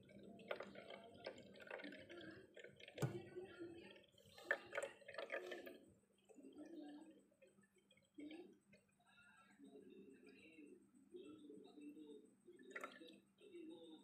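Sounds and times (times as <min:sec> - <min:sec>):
water dripping into glass jar: 0:00.0 - 0:08.9, 0:12.6 - 0:13.2.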